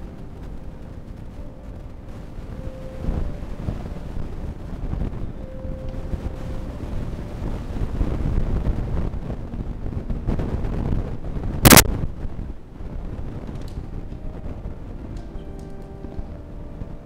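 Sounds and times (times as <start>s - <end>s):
low rumbling room noise: 0.0s - 17.0s
sharp bang: 11.6s - 11.9s.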